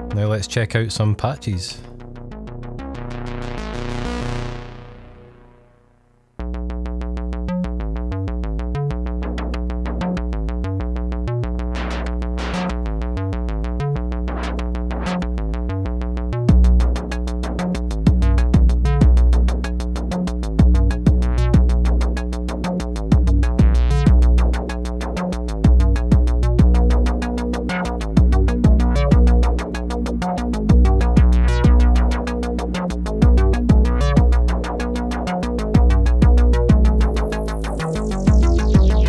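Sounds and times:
deep synth bass: 1.8 - 5.6, 6.4 - 39.0
repeating synth notes: 26.1 - 39.0.

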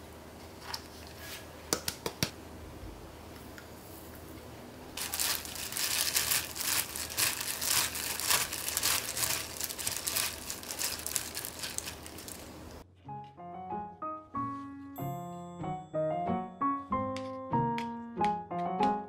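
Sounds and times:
crinkling and rustling: 5.0 - 12.8.

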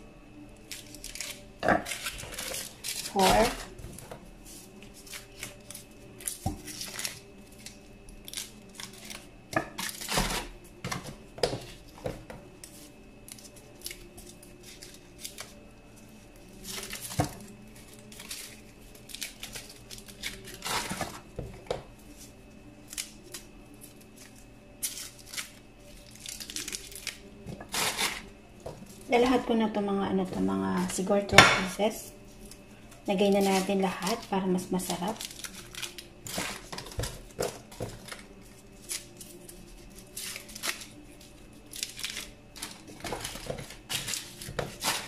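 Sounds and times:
foil crinkling and tearing: 0.5 - 12.0, 12.6 - 21.4, 22.1 - 29.6, 32.3 - 45.0.

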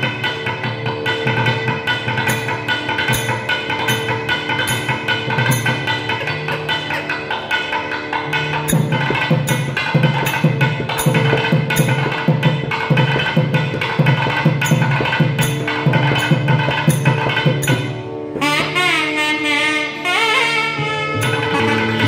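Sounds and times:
drum playing rhythmic strokes: 0.0 - 22.0
wavering reed horn melody: 18.4 - 22.0.

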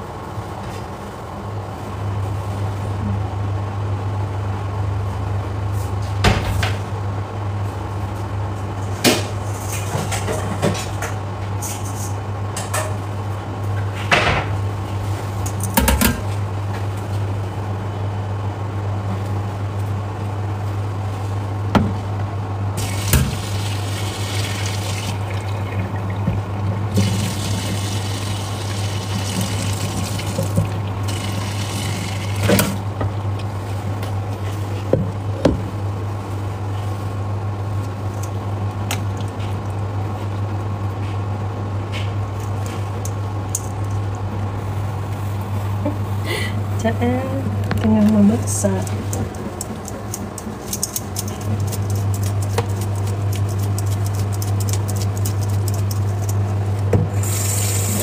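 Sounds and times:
low hum with hiss: 0.0 - 58.0
bright hiss: 57.1 - 58.0.

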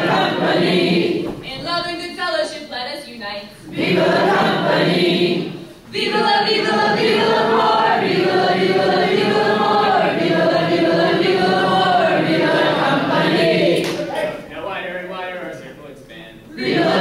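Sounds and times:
people singing live: 0.0 - 1.4, 3.6 - 14.2, 16.5 - 17.0.

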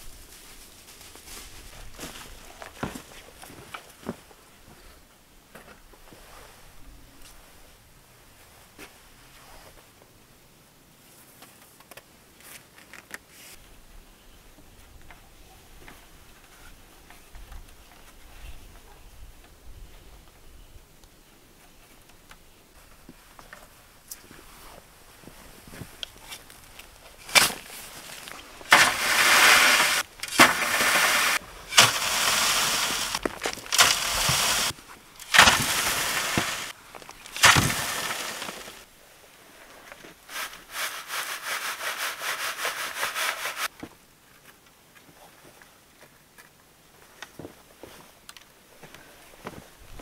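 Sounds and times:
shovelful landing on wire mesh: 28.6 - 38.8
sieve rattling: 28.6 - 38.8
soil pouring through sieve: 28.6 - 38.8, 40.3 - 43.7.

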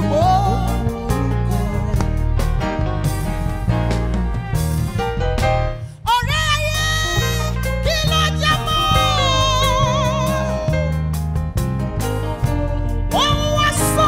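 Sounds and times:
woman singing with vibrato: 0.0 - 2.1, 6.0 - 11.0, 13.1 - 14.0
gospel band with bass line: 0.0 - 14.0.

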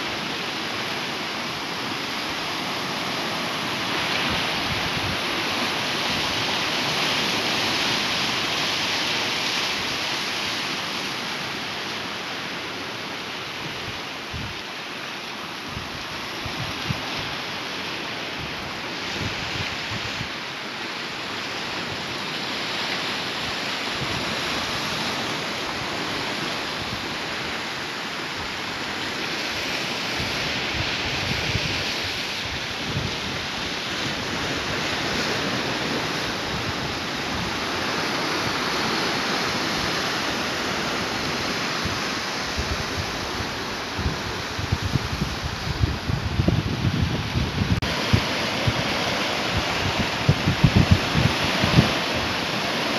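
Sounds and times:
surf washing over rocks: 0.0 - 52.9
wind buffeting microphone: 4.2 - 6.5, 13.7 - 14.6, 15.7 - 17.4, 18.4 - 20.4, 30.0 - 52.9.

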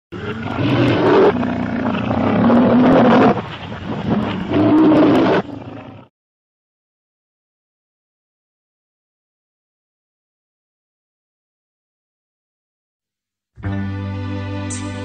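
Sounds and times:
lion roaring: 0.1 - 6.1.

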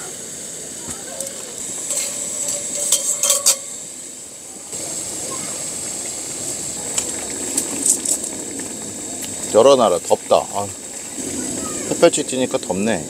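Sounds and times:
wok boiling and bubbling: 0.0 - 13.0
metal cups clinking: 1.8 - 3.9.

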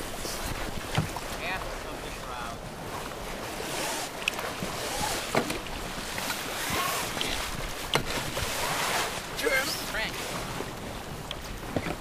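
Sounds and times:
water rushing along hull: 0.0 - 12.0
wind on microphone: 0.0 - 12.0.

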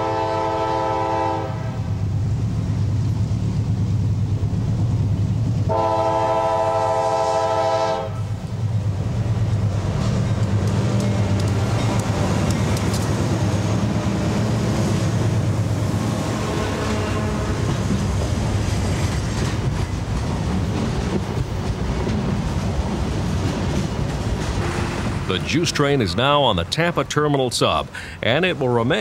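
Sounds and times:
locomotive air horn: 0.0 - 1.9, 5.7 - 8.3, 16.1 - 17.7, 24.6 - 25.3
diesel engine rumble: 1.8 - 5.8, 8.2 - 29.0
train wheels clattering on rails: 8.5 - 15.8, 16.5 - 25.7.

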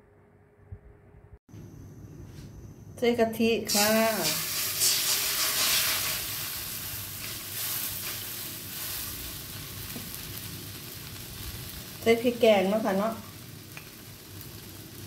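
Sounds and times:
coconut milk sizzling in a wok: 3.6 - 15.0.

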